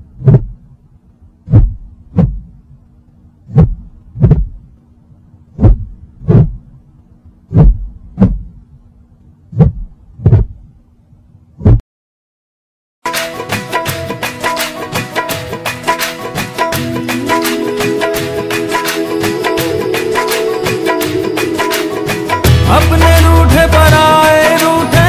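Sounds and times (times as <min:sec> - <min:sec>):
faint steady hum: 0:00.0 - 0:11.7
heartbeat thumps: 0:00.1 - 0:00.7, 0:01.4 - 0:02.6, 0:03.5 - 0:04.7, 0:05.6 - 0:06.8, 0:07.5 - 0:08.6, 0:09.5 - 0:10.6, 0:11.6 - 0:11.8.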